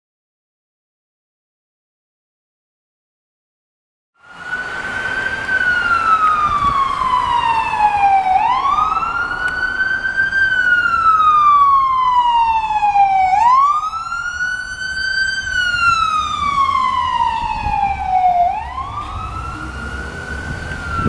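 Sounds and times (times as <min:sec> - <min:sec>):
ambulance siren wailing: 0:04.2 - 0:21.0.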